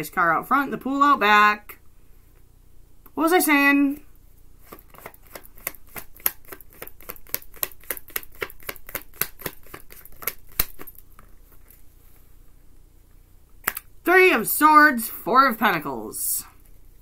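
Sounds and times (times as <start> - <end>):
cards shuffling and clicking: 4.6 - 11.8.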